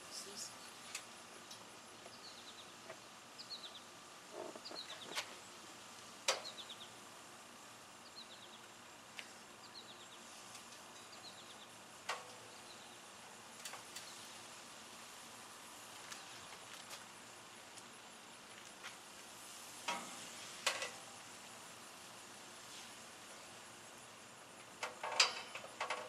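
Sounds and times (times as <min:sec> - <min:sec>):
bird chirping: 0:00.1 - 0:05.5, 0:06.4 - 0:07.0, 0:08.0 - 0:08.7, 0:09.6 - 0:10.3, 0:10.9 - 0:11.8.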